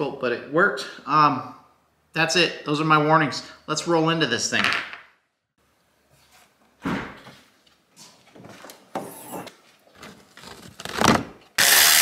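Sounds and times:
cordless power tool burst: 11.6 - 12.0.

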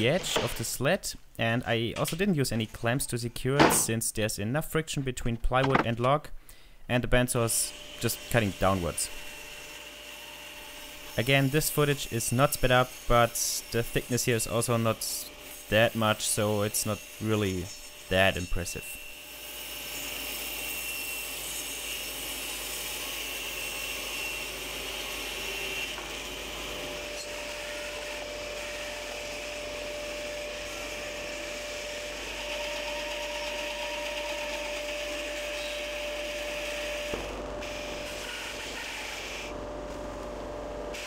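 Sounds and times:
bandsaw cutting log: 7.8 - 39.5.

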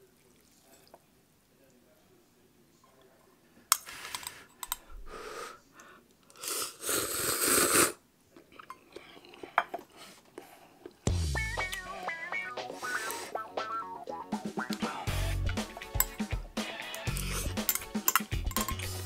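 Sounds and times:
slurping noodles: 6.3 - 8.0, 17.0 - 17.6
utensils clicking: 16.9 - 19.0.

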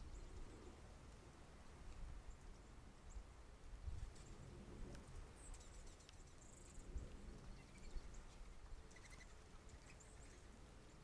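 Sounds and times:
high bird chirps: 8.9 - 10.4.

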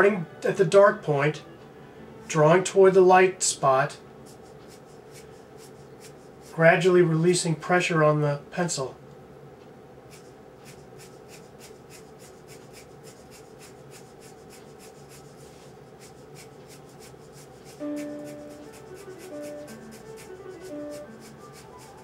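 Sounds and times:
pencil scratching on paper: 4.3 - 6.7, 10.1 - 22.0
sustained musical notes: 17.8 - 22.0.

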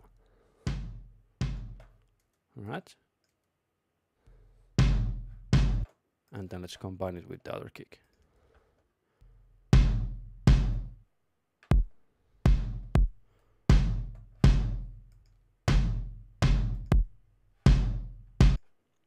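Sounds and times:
deep kick drum hits: 0.7 - 1.8, 4.8 - 5.8, 9.8 - 10.9, 12.5 - 14.8, 15.7 - 17.1, 17.7 - 18.6.

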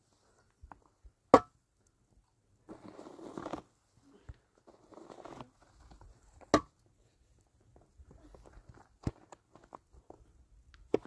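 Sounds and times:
shovel scraping snow off plastic: 2.7 - 3.7, 4.6 - 5.5.

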